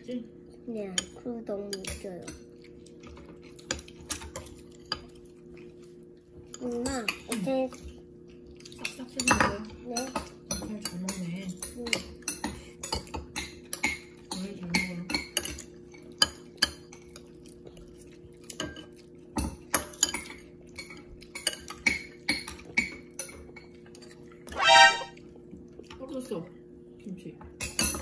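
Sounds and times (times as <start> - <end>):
brief high-pitched sound: 24.5 - 25.1
metal spoon scraping a bowl: 24.6 - 25.1.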